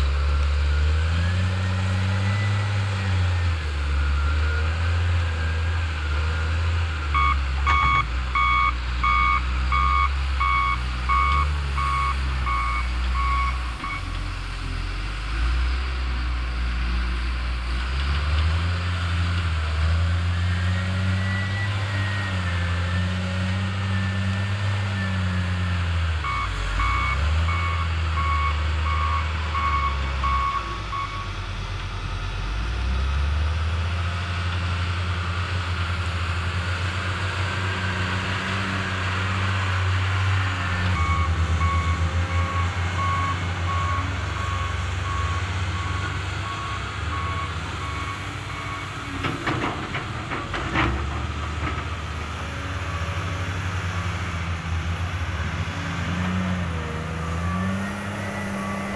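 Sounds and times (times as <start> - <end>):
diesel engines revving: 0.0 - 58.9
reverse alarm beeping: 7.2 - 14.1, 26.2 - 31.4, 41.0 - 48.9.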